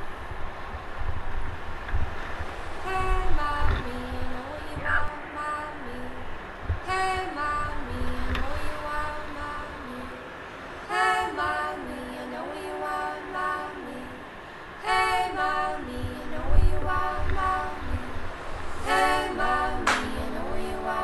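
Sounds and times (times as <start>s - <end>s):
horn-like chords: 14.8s - 21.0s.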